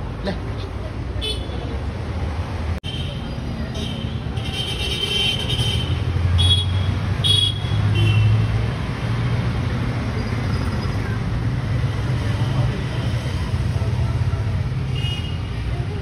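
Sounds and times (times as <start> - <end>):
road traffic rumble: 0.0 - 16.0.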